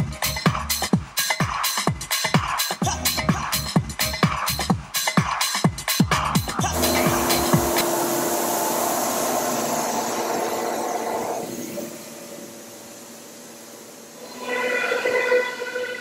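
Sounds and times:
router steady mechanical noise: 6.7s - 14.3s
router bit whine cutting: 6.7s - 16.0s.

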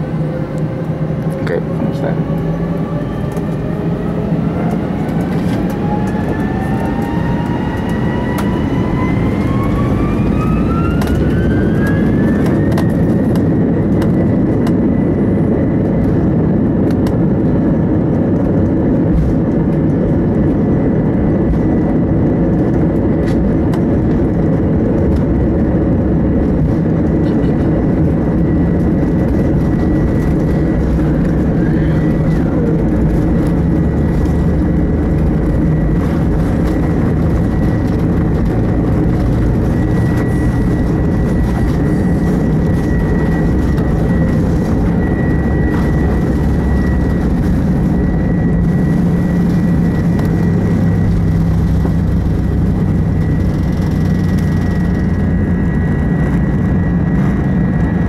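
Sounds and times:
jet engines whining: 0.0s - 58.0s
loud rumble of take-off roll: 0.0s - 58.0s.

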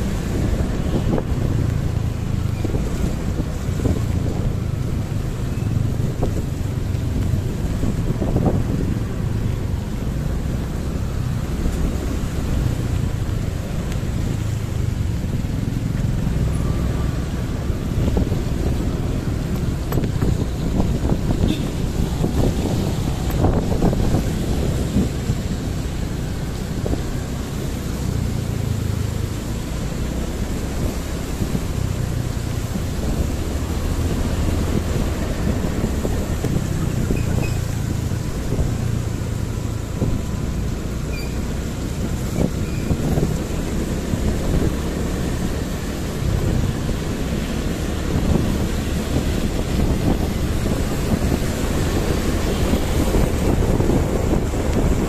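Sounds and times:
motorbike engine and road rumble: 0.0s - 55.0s
wind buffeting microphone: 0.0s - 55.0s.

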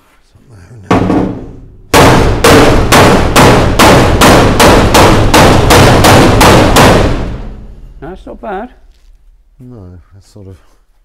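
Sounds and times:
hammer striking metal: 0.9s - 8.4s.

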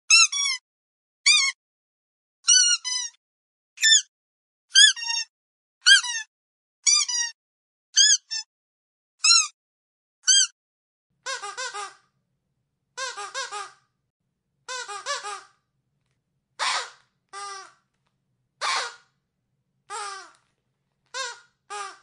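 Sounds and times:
squeaky dog toy squeaking: 0.1s - 0.6s, 1.3s - 1.6s, 2.4s - 3.2s, 3.8s - 4.1s, 4.7s - 7.4s, 8.0s - 8.5s, 9.2s - 9.6s, 10.2s - 10.6s, 11.2s - 12.0s, 13.0s - 13.8s, 14.7s - 15.6s, 16.6s - 17.8s, 18.6s - 19.1s, 19.9s - 20.4s, 21.1s - 22.0s.

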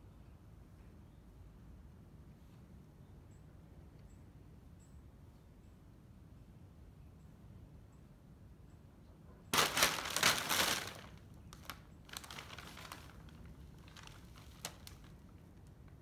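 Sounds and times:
plastic bag crinkling: 9.6s - 15.4s.

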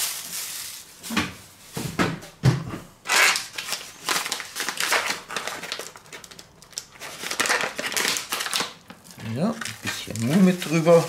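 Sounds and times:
food packaging crinkling: 0.0s - 0.9s, 3.1s - 11.0s.

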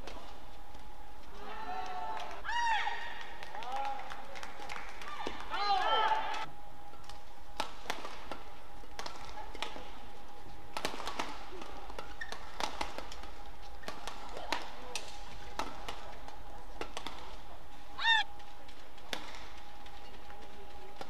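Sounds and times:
faint steady hum: 0.0s - 21.0s
racket hitting shuttlecock: 7.0s - 9.8s, 10.7s - 16.1s, 16.8s - 17.4s, 19.1s - 19.5s
shoe squeaking on court floor: 12.1s - 12.8s.

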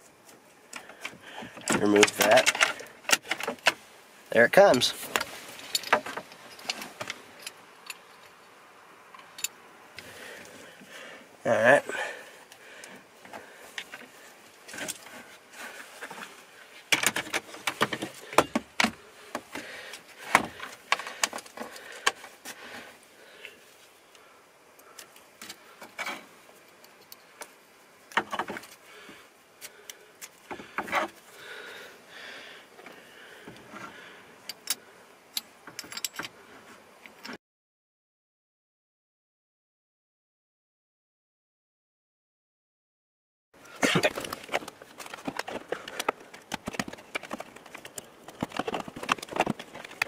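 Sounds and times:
gear shifter parts clicking and rattling: 0.8s - 3.8s, 16.9s - 22.3s, 43.9s - 50.0s.

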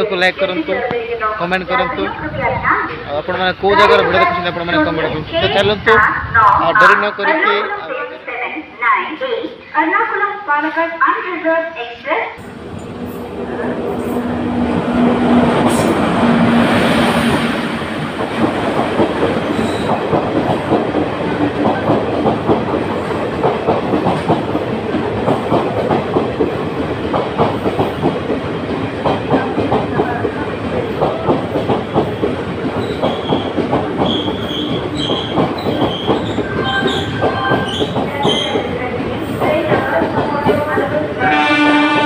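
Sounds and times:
locomotive rushing past: 12.4s - 42.0s
train wheels clickety-clack: 13.8s - 42.0s.

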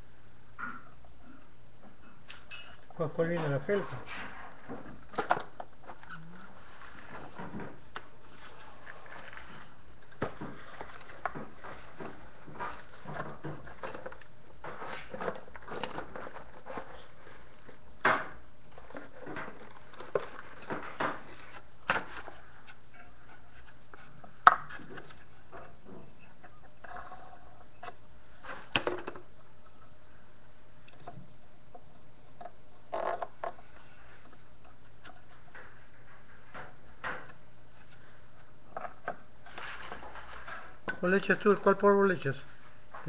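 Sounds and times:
faint low hum: 0.0s - 43.0s.

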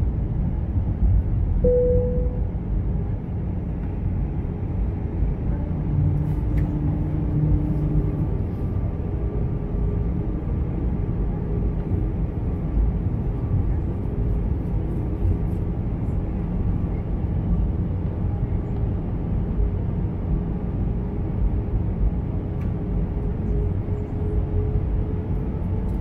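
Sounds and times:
airplane cabin rumble: 0.0s - 26.0s
low steady hum: 1.5s - 3.0s.

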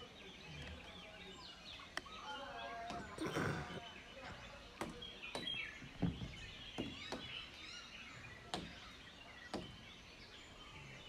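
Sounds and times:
birds chirping faintly: 0.0s - 11.0s.

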